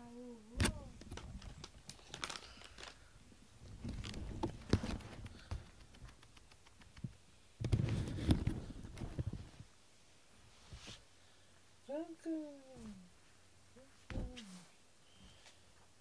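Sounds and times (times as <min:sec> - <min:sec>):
microphone handling noise: 0:07.0 - 0:09.7.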